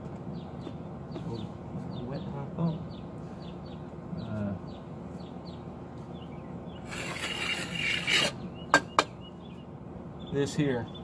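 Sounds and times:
bird chirping: 0.2s - 11.0s
rough scraping: 6.8s - 8.4s.

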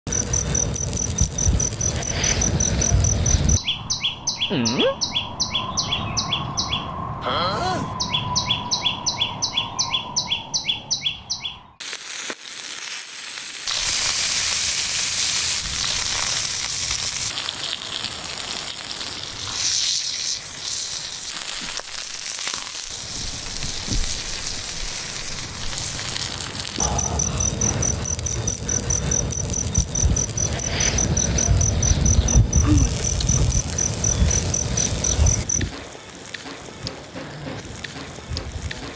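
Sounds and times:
food sizzling and crackling: 0.1s - 3.6s, 11.8s - 38.9s
crickets chirping: 0.1s - 4.4s, 26.8s - 36.7s.

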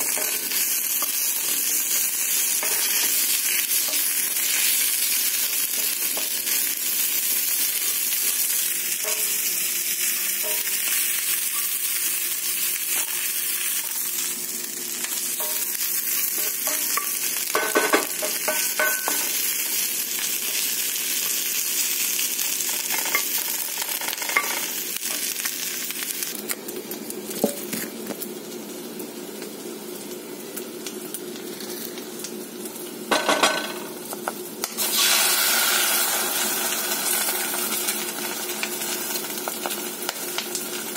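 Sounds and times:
onion sizzling in oil: 0.0s - 40.9s.

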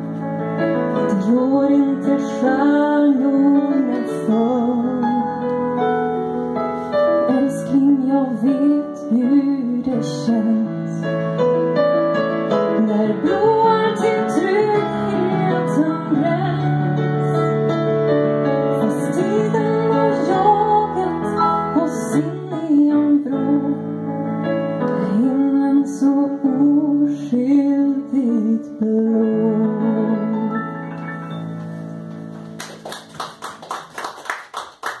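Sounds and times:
electric piano: 0.0s - 33.9s
woman singing a slow ballad: 1.0s - 5.6s, 7.3s - 11.1s, 12.7s - 17.5s, 18.8s - 24.0s, 24.9s - 30.7s
hand-clapping: 32.4s - 35.0s.

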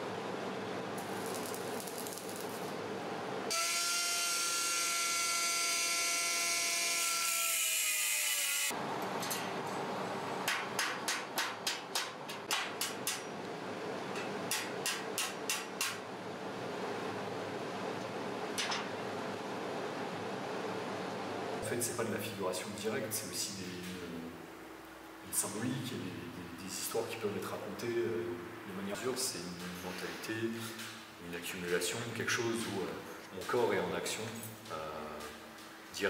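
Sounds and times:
welding whine with crackling hiss: 0.0s - 9.9s, 12.8s - 36.0s.

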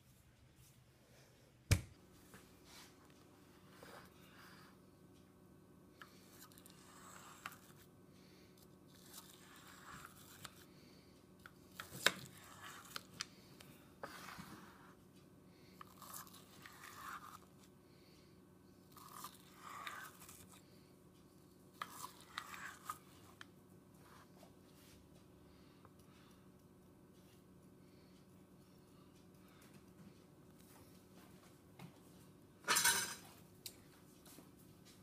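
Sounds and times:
knife scraping frozen sorbet: 8.9s - 10.7s, 11.8s - 13.2s, 14.0s - 15.0s, 15.8s - 17.6s, 18.9s - 20.6s, 21.8s - 23.1s.

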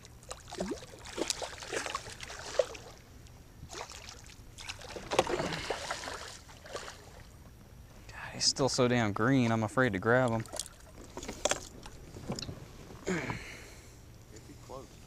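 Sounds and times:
fish thrashing and splashing: 0.2s - 3.0s, 3.7s - 7.3s.

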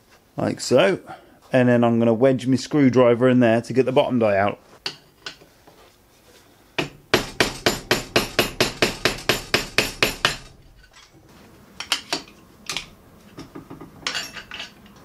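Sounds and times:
hammer tapping steel: 6.8s - 11.0s.

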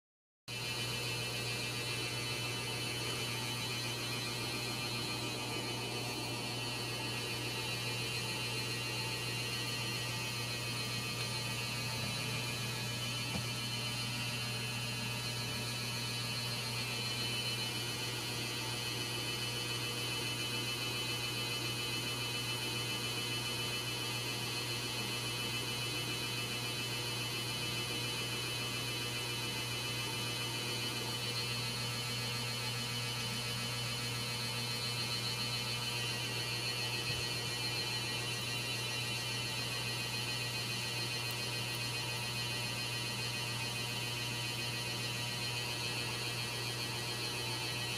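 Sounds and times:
high-pitched whine: 0.5s - 19.0s
electrical hum: 0.5s - 47.9s.

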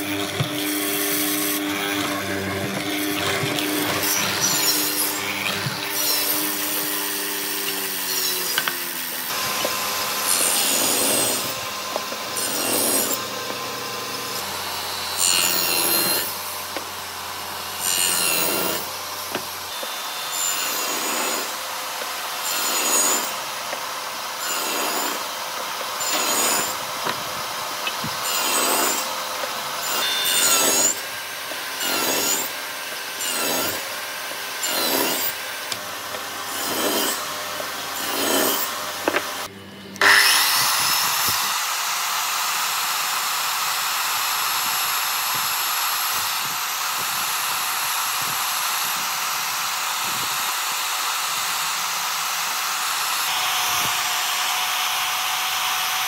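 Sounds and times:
rasp on wood: 0.0s - 16.9s, 20.4s - 21.6s, 24.4s - 25.3s, 26.0s - 27.2s, 28.2s - 32.6s, 33.2s - 33.9s, 34.6s - 39.3s.

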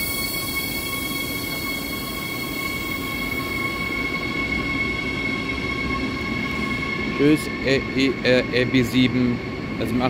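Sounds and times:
high hiss: 0.0s - 4.8s
electric train whine: 0.0s - 10.0s
train wheels rumbling on track: 0.0s - 10.0s.

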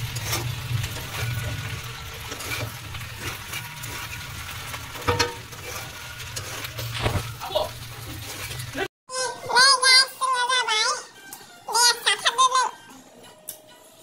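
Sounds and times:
metal spatula scraping a pan: 0.0s - 8.9s
noodles sizzling in a wok: 0.0s - 8.9s.

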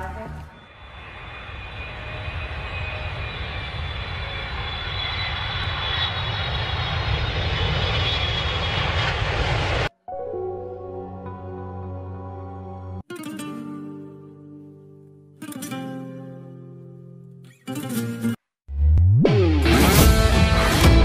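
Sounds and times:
jet engines rumbling and whining: 0.3s - 9.9s.

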